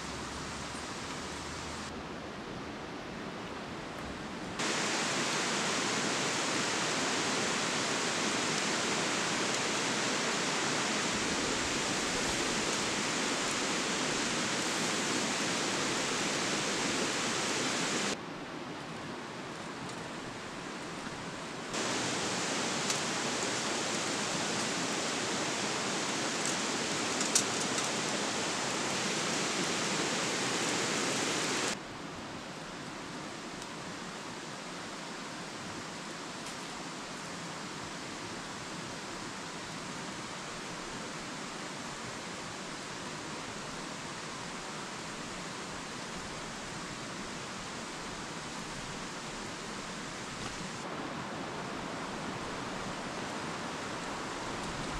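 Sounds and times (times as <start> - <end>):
loud hiss: 4.6 - 18.2, 21.8 - 31.8
stream running over rocks: 4.6 - 18.2, 20.5 - 31.8.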